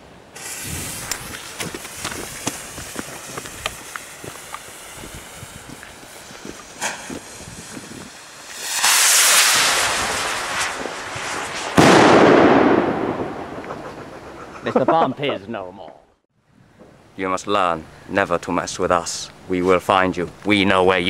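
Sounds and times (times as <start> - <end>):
loud rushing hiss: 0.3 - 12.6
firework fizzing and crackling: 0.3 - 14.1
sharp pops: 0.4 - 14.0
loud bang: 8.6 - 14.1.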